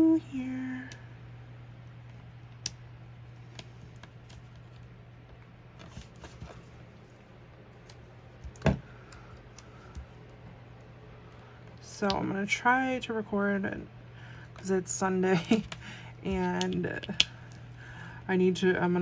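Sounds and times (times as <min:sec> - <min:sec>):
steady low hum: 0:00.0 - 0:19.0
paper and stickers tapping: 0:15.3 - 0:17.4.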